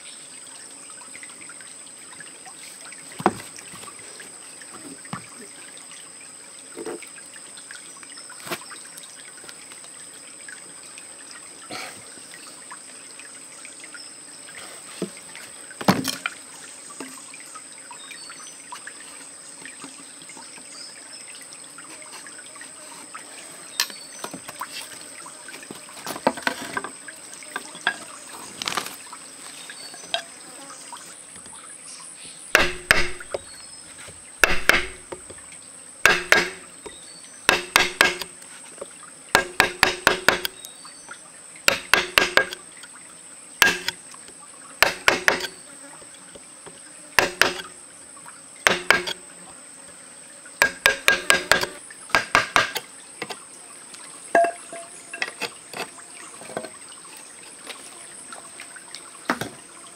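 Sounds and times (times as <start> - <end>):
knife chopping bamboo: 32.6 - 33.4, 34.4 - 35.2, 36.0 - 36.7, 37.5 - 38.3, 39.4 - 40.6, 41.7 - 42.6, 43.6 - 44.0, 44.8 - 45.6, 47.2 - 47.7, 48.7 - 49.2, 50.6 - 52.8
scraping and tapping: 54.4 - 57.8.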